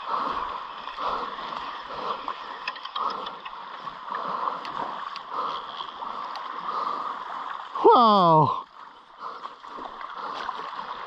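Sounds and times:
small clicks: 2.6 - 3.6.

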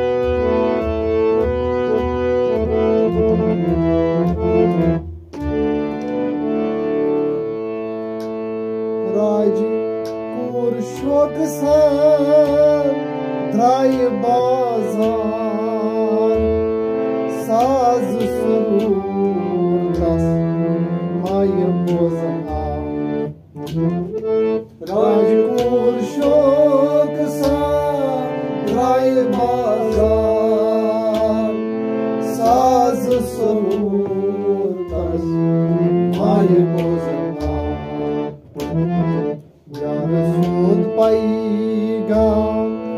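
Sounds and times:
harmonium chords: 0.0 - 42.9
person singing ornamented phrases: 24.8 - 31.6, 32.4 - 35.4.

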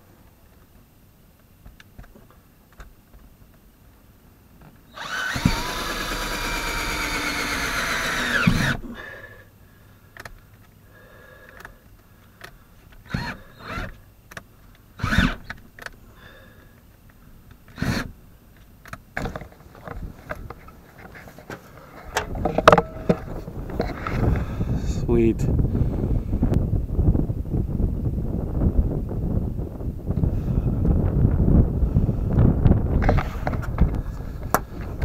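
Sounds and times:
cordless drill whining: 4.9 - 9.2, 13.0 - 14.0, 15.0 - 15.5, 17.7 - 18.1
sharp knocks and clunks: 22.1 - 23.9.

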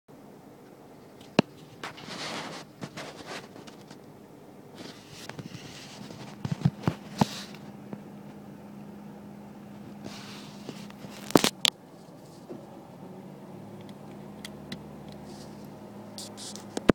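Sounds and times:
faint low hum: 0.1 - 16.9
brief rustling: 1.2 - 4.0, 4.8 - 7.8, 9.9 - 12.6.

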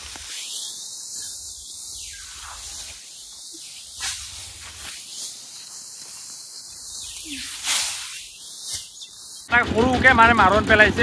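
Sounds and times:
dry rice sheaves rustling: 0.0 - 9.6
steady high hiss: 0.0 - 9.6
engine running: 9.5 - 11.0.

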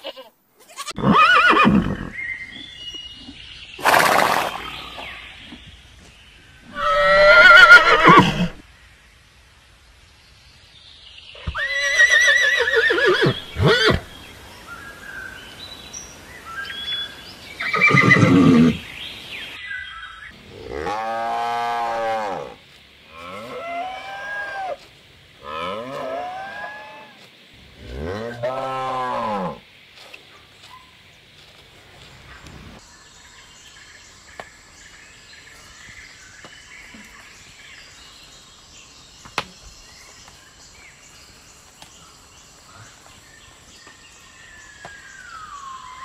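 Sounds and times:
horse neighing: 0.8 - 2.2, 6.7 - 8.6, 11.4 - 14.1, 17.6 - 18.8
cow mooing: 20.5 - 22.6.

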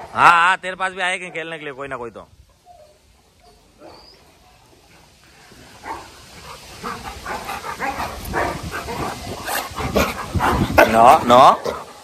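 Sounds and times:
dogs barking and whining: 2.5 - 4.7, 5.5 - 12.0.

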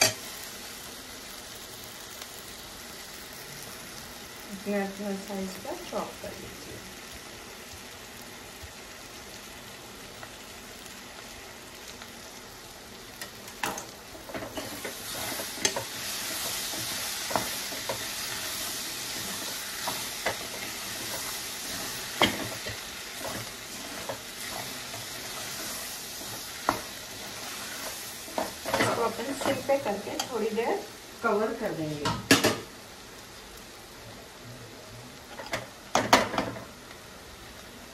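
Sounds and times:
food sizzling in oil: 0.0 - 37.9
metal spoon scraping pan: 14.3 - 30.3.

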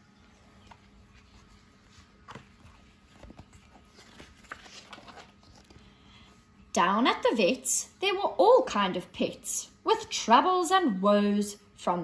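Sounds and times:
soft paper rustling: 0.2 - 6.4.

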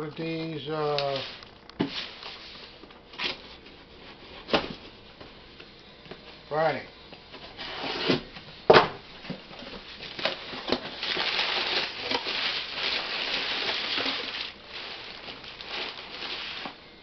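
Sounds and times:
packing paper rustling: 0.8 - 4.8, 9.6 - 17.0
tape tearing off cardboard box: 7.6 - 8.3.

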